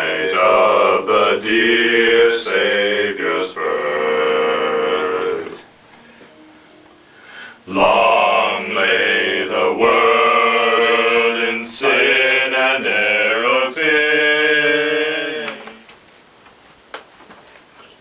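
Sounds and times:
men singing in harmony: 0:00.0 - 0:05.7, 0:07.6 - 0:15.8.

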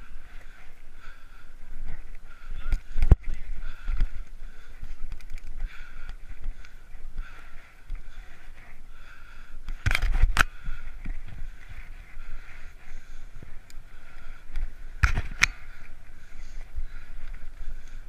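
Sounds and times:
bicycle rolling on pavement: 0:10.5 - 0:18.0.

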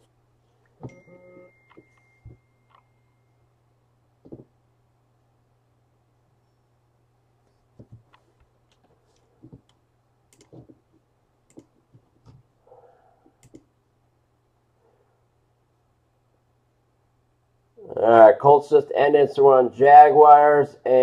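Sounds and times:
low steady hum: 0:00.0 - 0:21.0
faint clicks and taps: 0:07.4 - 0:12.5.

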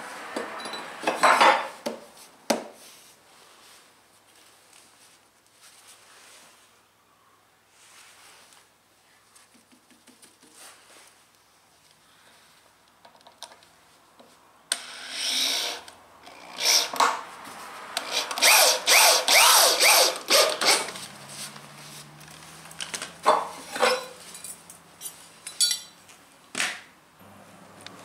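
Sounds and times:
power tool cutting wood: 0:14.7 - 0:17.2, 0:18.0 - 0:21.0.

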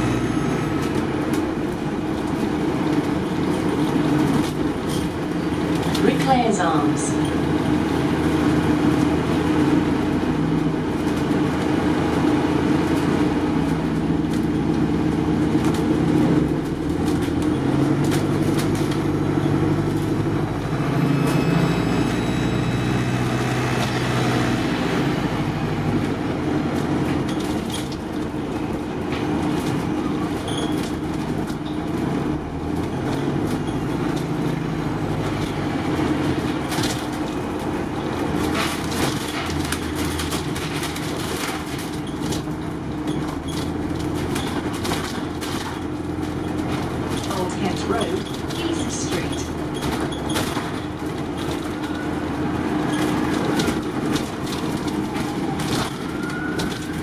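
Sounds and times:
bus engine accelerating: 0:00.0 - 0:57.0
road noise: 0:00.0 - 0:57.0
interior rattles: 0:26.4 - 0:57.0.

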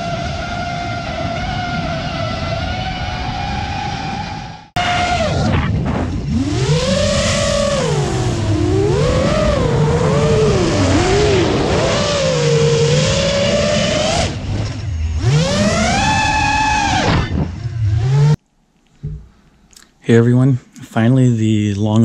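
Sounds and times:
quadcopter propellers whining: 0:00.0 - 0:18.4.

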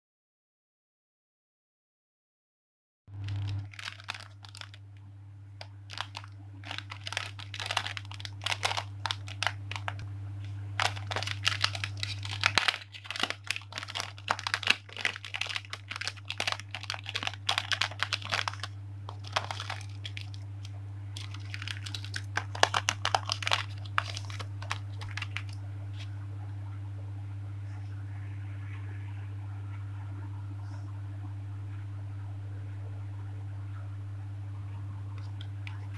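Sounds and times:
plastic bags crinkling: 0:03.1 - 0:05.0, 0:05.6 - 0:10.1, 0:10.7 - 0:25.6
low hum: 0:03.1 - 0:35.9.

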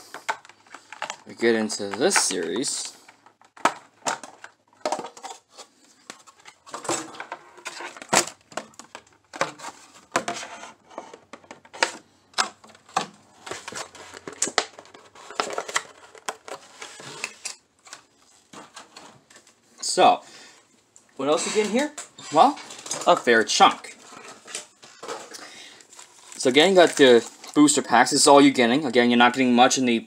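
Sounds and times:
plastic packaging crackling: 0:21.3 - 0:28.3.

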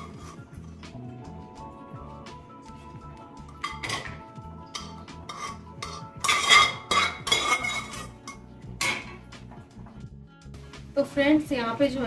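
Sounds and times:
steel ladle scraping a pot: 0:00.0 - 0:00.9, 0:03.4 - 0:09.3.

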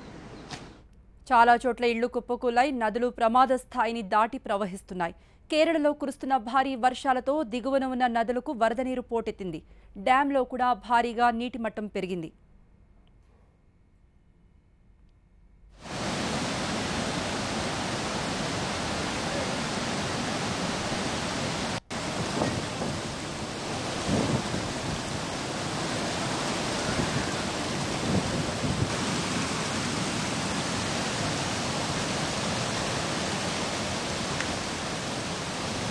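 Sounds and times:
rushing floodwater: 0:15.8 - 0:35.9.

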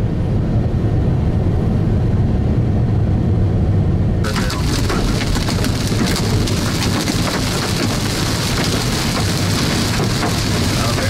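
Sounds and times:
rain and hail on car: 0:04.2 - 0:11.0.

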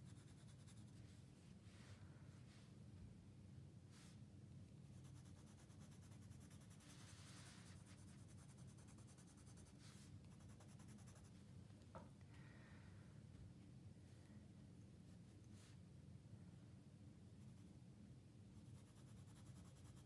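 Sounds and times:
colored pencil scratching on paper: 0:00.0 - 0:01.0, 0:04.9 - 0:11.4, 0:18.6 - 0:20.0.

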